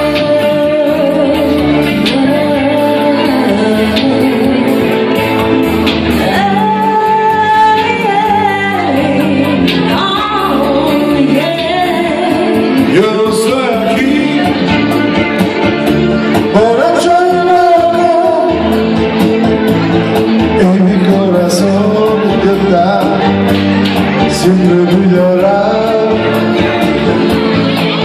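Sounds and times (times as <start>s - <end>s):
woman singing: 0.0s - 5.5s, 6.1s - 13.1s, 16.8s - 18.8s
live band music: 0.0s - 28.0s.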